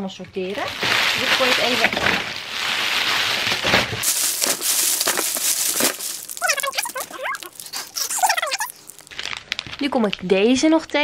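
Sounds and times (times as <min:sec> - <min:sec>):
plastic bags crinkling: 0:00.4 - 0:11.0
toy squeaks: 0:06.4 - 0:08.8.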